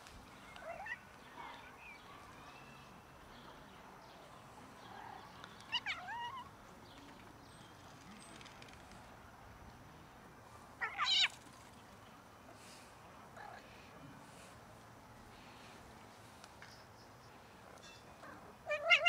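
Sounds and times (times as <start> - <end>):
cat crying: 10.8 - 11.3, 18.7 - 19.0
cat meowing: 18.7 - 19.0.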